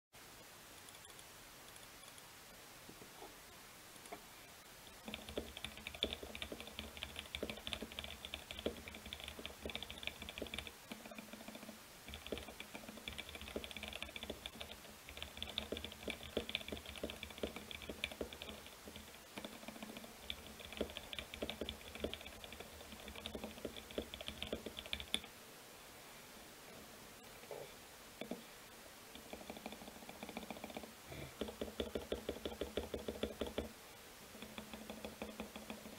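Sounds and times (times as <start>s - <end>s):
fast typing on mechanical keyboard: 5.0s - 25.3s, 29.3s - 33.7s, 34.4s - 35.9s.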